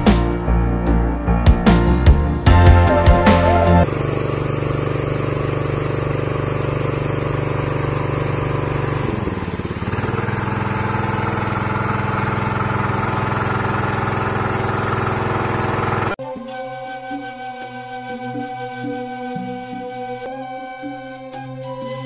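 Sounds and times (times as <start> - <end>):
small engine running: 3.8 - 16.2.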